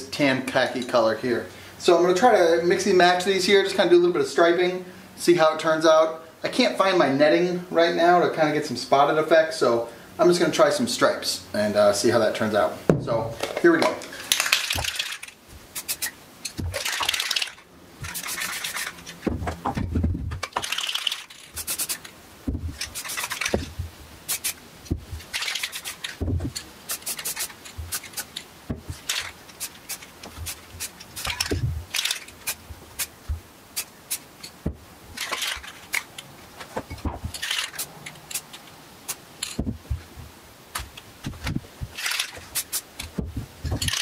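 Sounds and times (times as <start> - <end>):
cans clicking and knocking: 13.4 - 33.1
spray-paint cans hissing: 14.1 - 19.2, 20.5 - 44.0.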